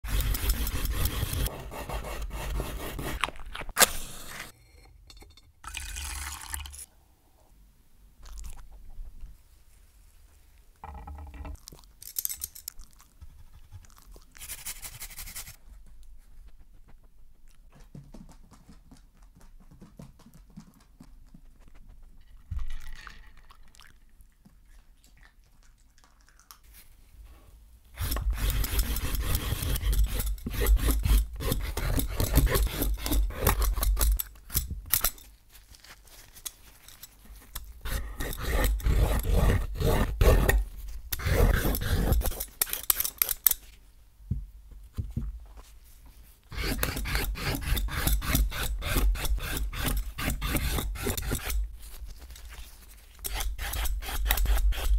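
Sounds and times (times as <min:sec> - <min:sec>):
rasping strokes on wooden board: 0:00.0 - 0:03.2, 0:28.0 - 0:33.8, 0:37.8 - 0:42.8, 0:46.5 - 0:51.6.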